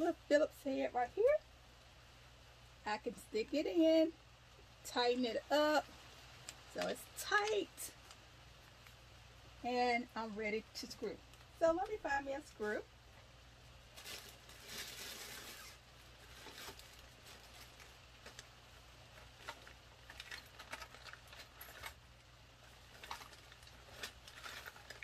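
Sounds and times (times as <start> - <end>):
hands rummaging through parts: 19.2 - 22.0, 22.7 - 25.0.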